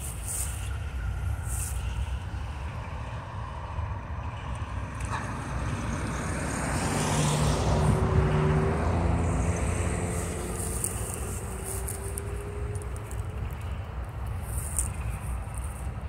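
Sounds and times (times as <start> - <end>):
faint steady whine: 0.0 - 5.2
steel wheels rumbling on rail: 0.0 - 16.0.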